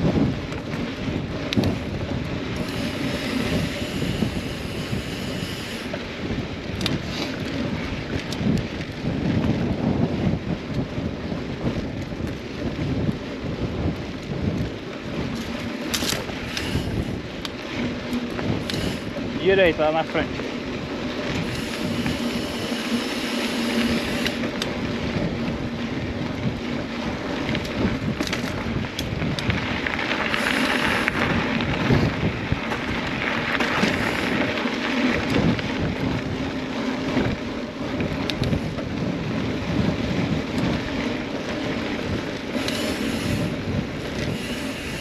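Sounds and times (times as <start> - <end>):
bike rolling on dirt trail: 0.0 - 45.0
wind noise on microphone: 0.0 - 45.0
bike knocks and rattles: 22.9 - 43.0.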